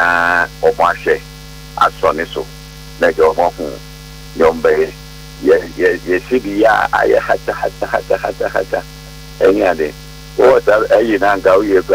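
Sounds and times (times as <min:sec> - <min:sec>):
low electrical mains hum: 0:00.0 - 0:11.9
man talking: 0:01.8 - 0:03.8, 0:04.4 - 0:08.8, 0:09.4 - 0:11.9.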